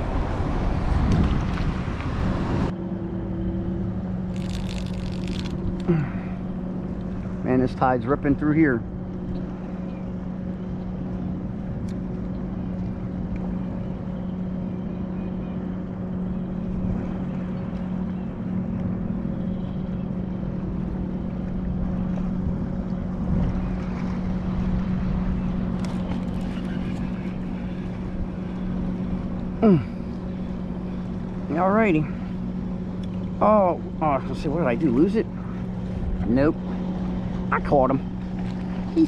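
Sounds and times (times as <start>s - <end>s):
wind noise: 0.0s - 2.7s, 22.0s - 28.4s
electric trolling motor humming: 0.0s - 39.0s
water wash: 20.6s - 39.0s.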